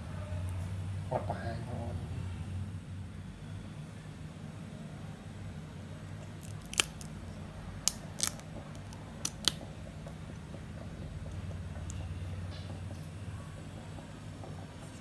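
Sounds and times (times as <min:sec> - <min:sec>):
mussel shells clicking: 0:06.4 - 0:07.1, 0:07.8 - 0:09.7.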